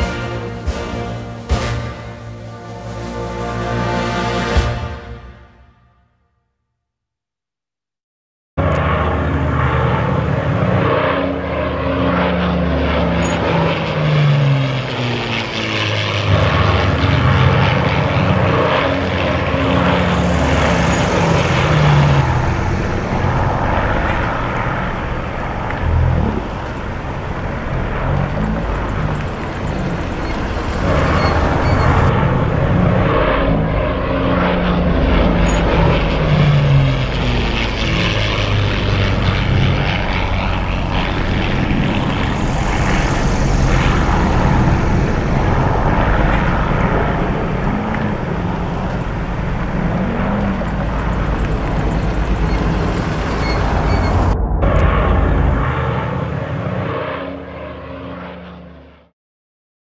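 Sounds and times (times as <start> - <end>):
aircraft piston engines running: 0.0 - 4.8, 8.6 - 58.4.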